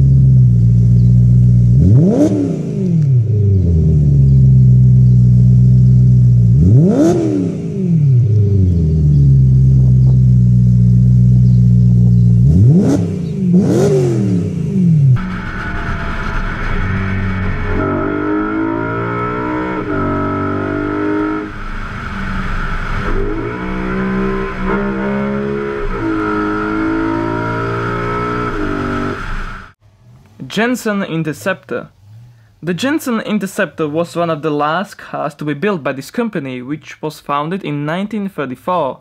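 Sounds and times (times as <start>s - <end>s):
car engine revving: 0.0s - 30.4s
steady high whine: 15.1s - 26.1s.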